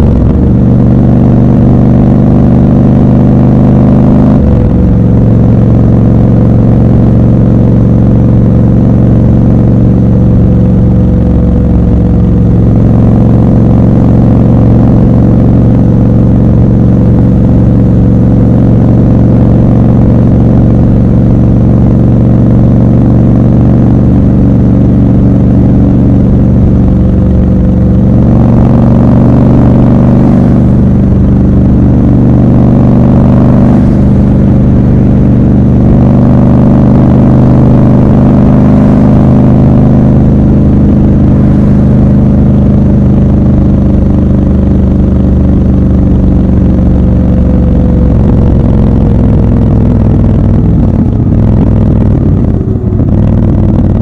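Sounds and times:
motorcycle engine cruising: 0.0 - 54.0.

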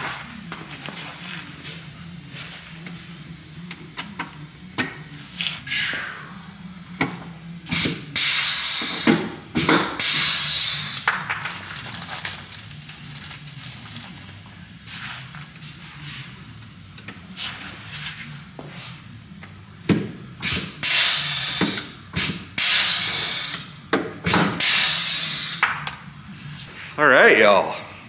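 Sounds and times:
loud hissing bursts: 20.4 - 23.6, 24.6 - 25.6.

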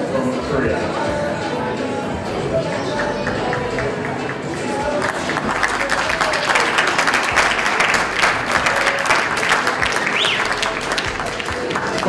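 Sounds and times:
audience applauding: 3.0 - 12.0.

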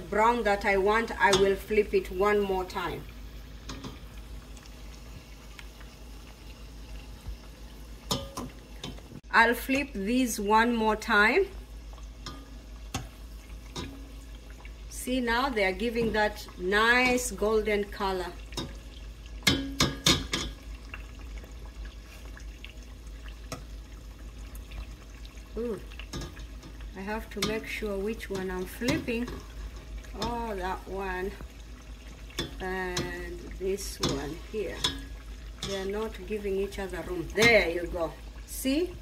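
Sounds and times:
dough sizzling in hot oil: 0.0 - 39.0
skimmer knocking on steel pot: 8.1 - 9.0, 19.4 - 20.6.

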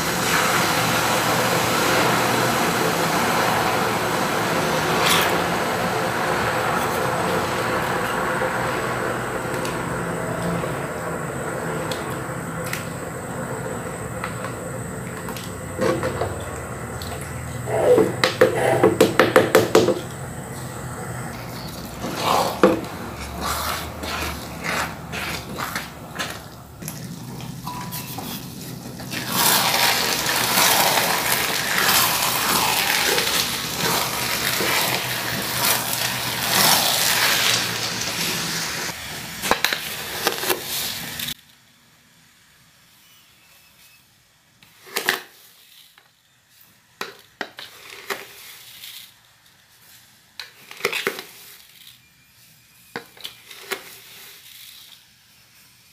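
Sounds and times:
rice stirred in wok: 0.0 - 16.8, 21.3 - 41.4, 47.5 - 51.9, 53.1 - 55.1
loud steady hiss: 0.0 - 47.0.

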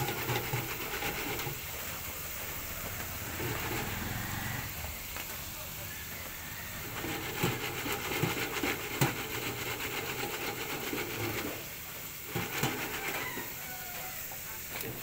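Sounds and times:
fries sizzling in hot oil: 0.0 - 15.0
fry basket clanks: 6.4 - 15.0.

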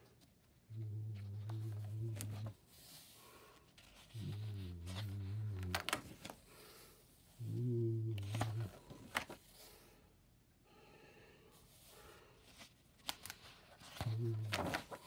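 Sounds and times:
sketchbook pages turning: 0.0 - 6.4, 8.1 - 9.7, 12.4 - 15.0
low voice humming: 0.7 - 2.6, 4.0 - 6.3, 7.4 - 9.1, 13.9 - 15.0.

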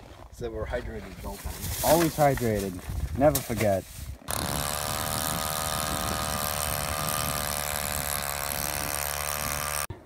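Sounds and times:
ice auger engine running: 4.3 - 9.9.

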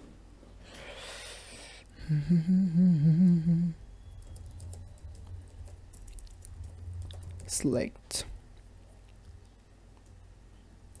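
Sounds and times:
faint low hum: 0.0 - 11.0
person humming a tune: 1.9 - 3.8.

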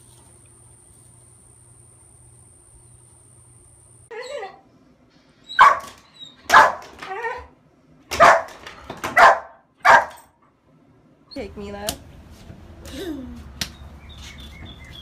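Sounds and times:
dog barking: 5.6 - 7.4, 8.1 - 10.2.

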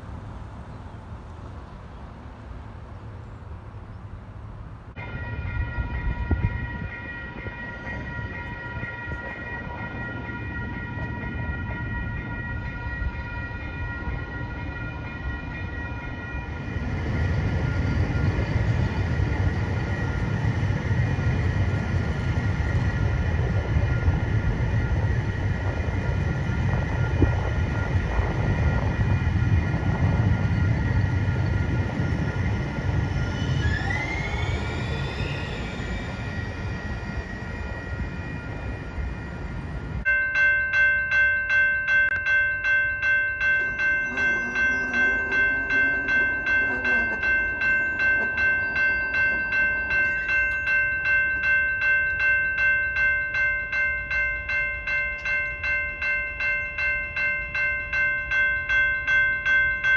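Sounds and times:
trolley rumbling past: 0.0 - 40.2, 42.0 - 59.9
crossing signal bell ringing: 5.0 - 59.9
train wheels squealing: 15.5 - 40.0, 43.6 - 51.5.

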